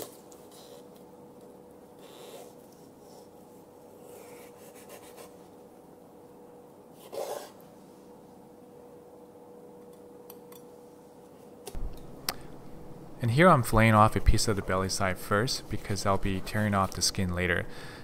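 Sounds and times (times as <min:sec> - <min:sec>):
faint steady hum: 0:00.0 - 0:18.0
knife scraping on cutting board: 0:07.0 - 0:07.6.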